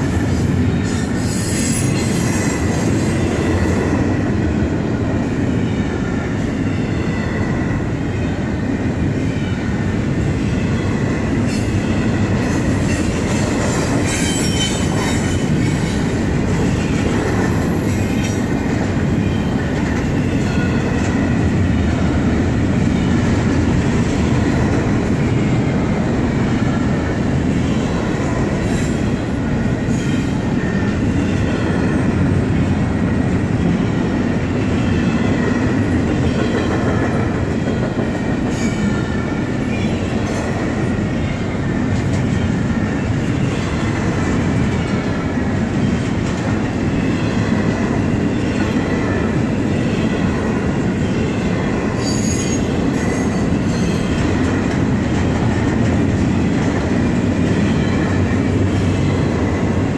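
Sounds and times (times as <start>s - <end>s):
train wheels rumbling on rail: 0.0s - 59.9s
wheels squealing: 12.8s - 16.1s.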